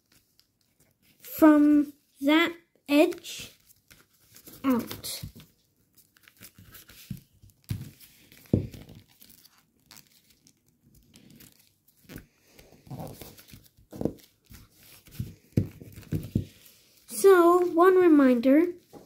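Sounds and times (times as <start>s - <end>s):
foil paper crinkling: 5.8s - 17.8s.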